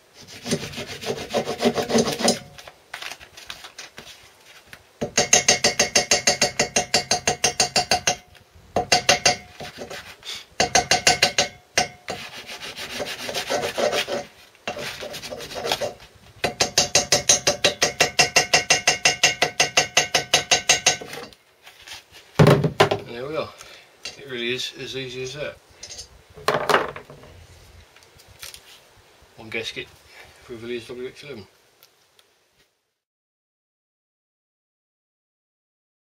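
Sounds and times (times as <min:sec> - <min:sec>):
hammer tapping on metal: 0:05.0 - 0:09.6, 0:10.6 - 0:12.2, 0:16.4 - 0:21.3.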